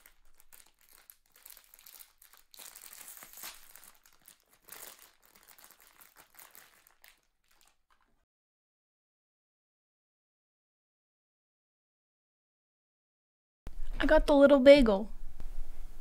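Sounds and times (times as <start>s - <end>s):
foil bag crinkling: 0.0s - 8.2s.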